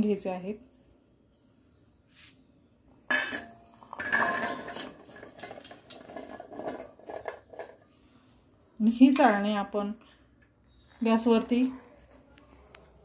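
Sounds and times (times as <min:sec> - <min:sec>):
berries rattling in metal strainer: 0:03.9 - 0:07.8.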